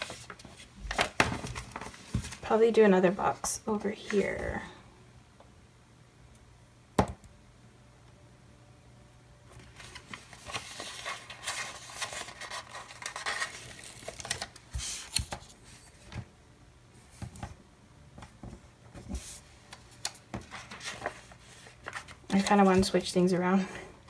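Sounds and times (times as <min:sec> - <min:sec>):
paper rustling and crinkling: 0:00.0 - 0:02.6, 0:09.5 - 0:16.3, 0:18.4 - 0:23.3.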